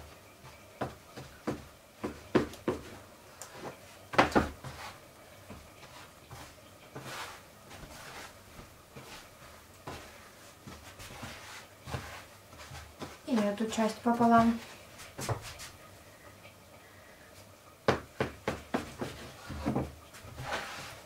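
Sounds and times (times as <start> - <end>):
dough handling sounds: 0.0 - 15.8, 17.3 - 21.0
knife cutting dough on wooden table: 9.9 - 13.2.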